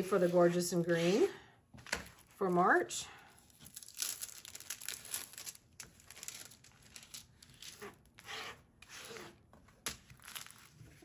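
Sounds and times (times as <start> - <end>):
plastic film rustling and crinkling: 1.8 - 8.0.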